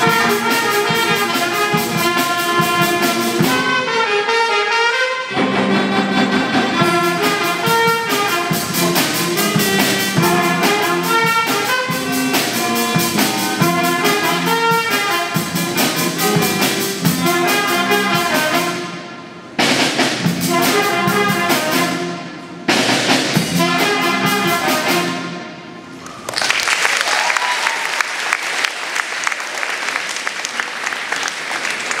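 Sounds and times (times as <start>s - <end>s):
jazz band playing: 0.0s - 26.0s
audience applause: 26.0s - 32.0s.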